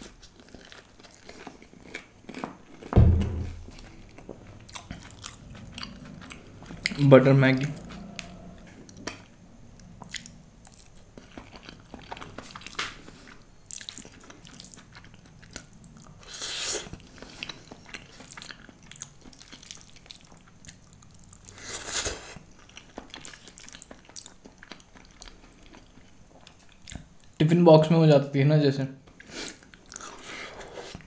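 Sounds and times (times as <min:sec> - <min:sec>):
person chewing noodles: 0:00.0 - 0:07.0, 0:07.6 - 0:27.4, 0:29.1 - 0:31.0.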